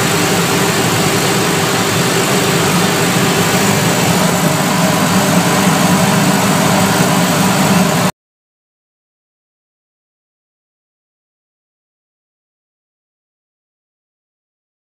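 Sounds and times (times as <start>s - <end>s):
machine mechanical drone and hiss: 0.0s - 8.1s.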